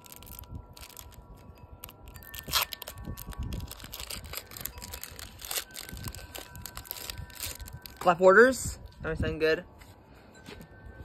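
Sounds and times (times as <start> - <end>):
foil pack ripping: 0.0 - 8.1
foil wrapper crinkling: 0.0 - 8.2.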